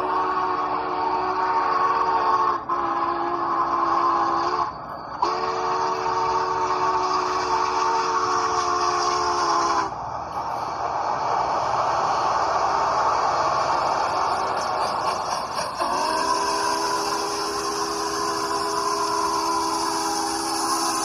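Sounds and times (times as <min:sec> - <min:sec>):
steam whistle blasts: 0:00.0 - 0:10.0, 0:13.8 - 0:21.0.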